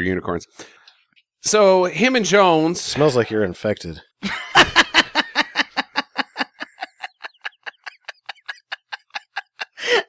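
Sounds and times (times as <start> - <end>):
person laughing breathily: 4.8 - 10.0.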